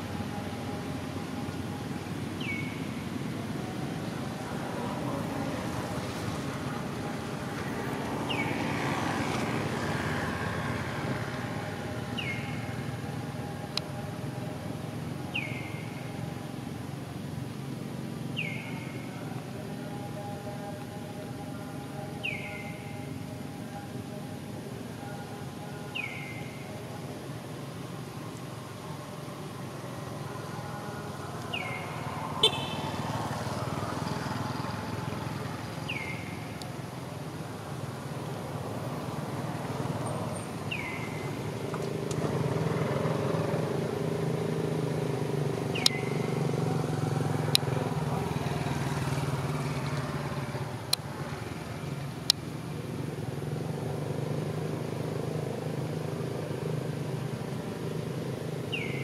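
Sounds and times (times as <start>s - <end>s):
motor vehicle rumbling past: 0.0s - 13.6s, 27.4s - 59.0s.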